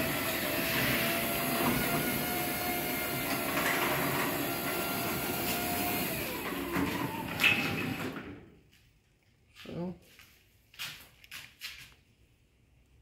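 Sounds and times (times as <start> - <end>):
garage door opener whining: 0.0 - 8.5.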